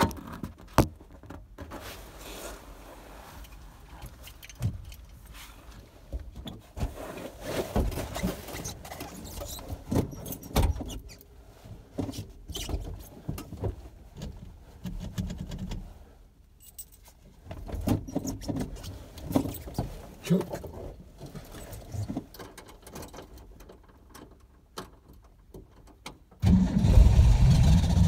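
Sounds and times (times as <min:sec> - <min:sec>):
clicks and knocks inside car: 0:11.8 - 0:16.0.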